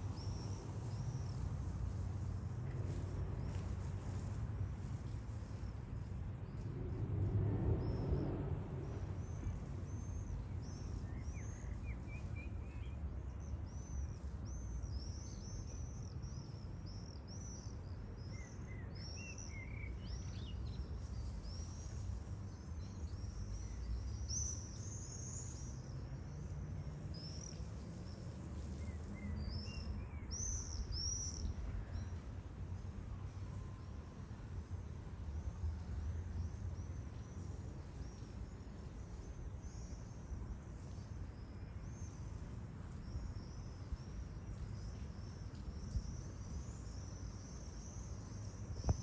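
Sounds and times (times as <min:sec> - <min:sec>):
small birds chirping: 0:00.0 - 0:07.0, 0:08.8 - 0:32.5, 0:35.4 - 0:49.0
steady low rumble: 0:01.6 - 0:10.8.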